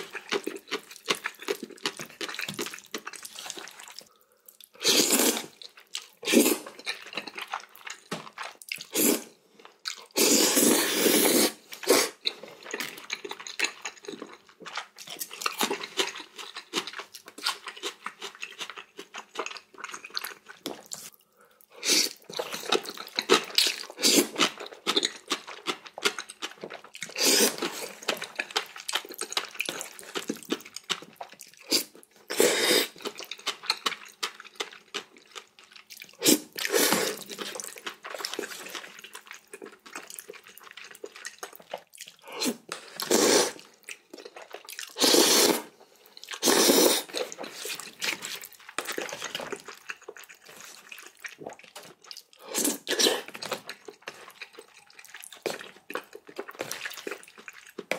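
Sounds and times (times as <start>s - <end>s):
chewing: 0.0s - 57.9s
person slurping noodles: 4.7s - 5.6s, 6.2s - 6.8s, 8.8s - 9.4s, 10.1s - 12.8s, 21.7s - 22.8s, 23.6s - 24.5s, 27.1s - 28.1s, 31.6s - 33.0s, 36.1s - 37.6s, 42.2s - 43.8s, 44.8s - 48.4s, 52.4s - 53.4s.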